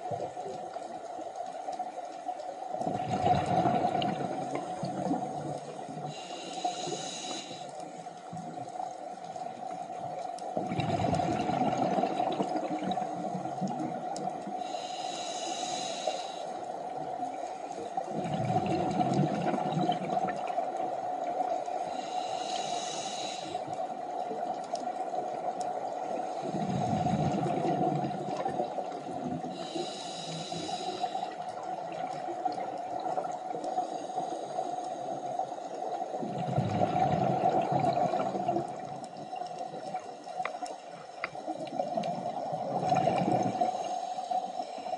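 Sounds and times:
exhaled bubbles underwater: 0:02.8 - 0:06.3, 0:08.4 - 0:14.9, 0:16.8 - 0:34.2, 0:35.0 - 0:44.0
regulator inhalation hiss: 0:05.7 - 0:07.9, 0:14.6 - 0:16.9, 0:21.7 - 0:23.7, 0:29.5 - 0:31.4, 0:33.7 - 0:35.7, 0:43.5 - 0:44.9.

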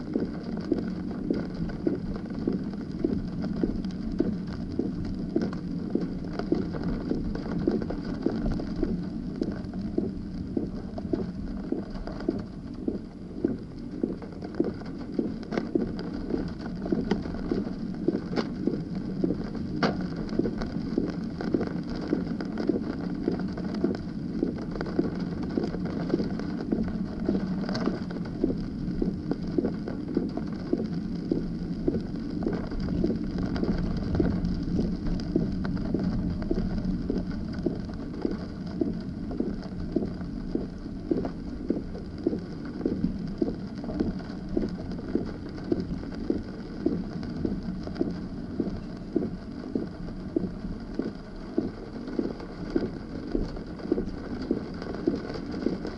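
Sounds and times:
heavy rain: 0:14.3 - 0:41.1, 0:41.8 - 0:55.9.

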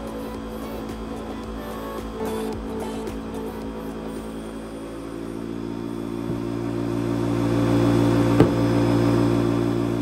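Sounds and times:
air rushing from tyre inflator: 0:00.0 - 0:10.0
low hum: 0:00.0 - 0:10.0.

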